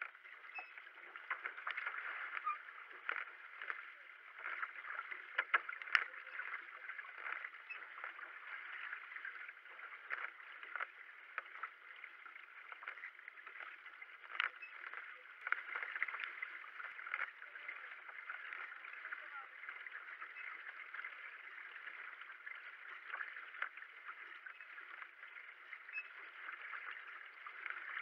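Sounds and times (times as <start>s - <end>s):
paddle blades splashing: 0.0s - 28.0s
water rushing along hull: 0.0s - 28.0s.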